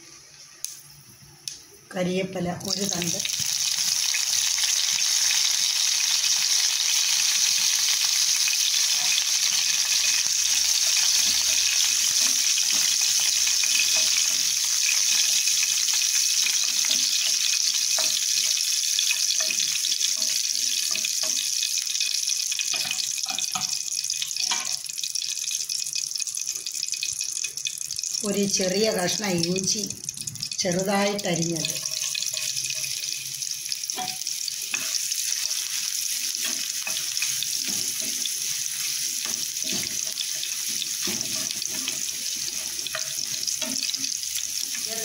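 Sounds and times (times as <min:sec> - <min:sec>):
spices sizzling in hot oil: 0:00.0 - 0:45.0
spatula stirring in pan: 0:08.6 - 0:24.8, 0:31.6 - 0:45.0.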